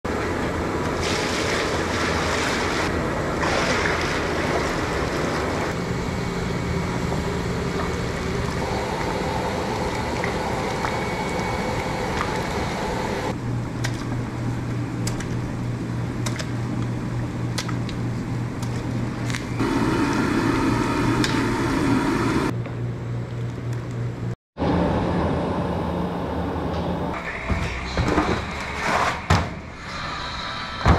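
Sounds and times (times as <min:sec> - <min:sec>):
low hum: 0:02.9 - 0:27.8
steam rushing: 0:19.6 - 0:22.5.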